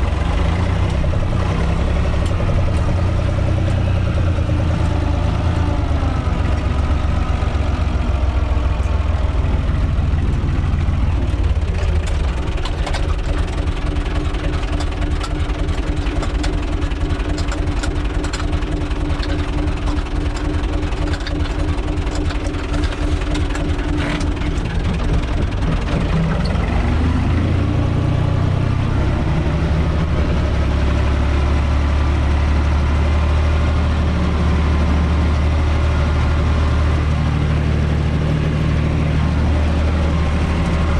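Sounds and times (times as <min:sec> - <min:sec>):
tractor diesel engine running: 0:00.0 - 0:40.9
sharp rattles: 0:10.0 - 0:26.7.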